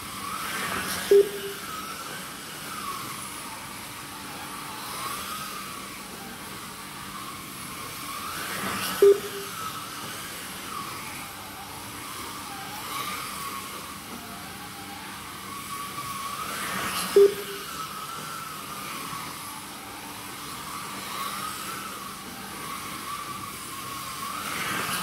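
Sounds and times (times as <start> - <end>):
slot car motors whining: 0.0 - 25.0
short loud beeps: 1.1 - 1.7, 9.0 - 9.6, 17.2 - 17.8.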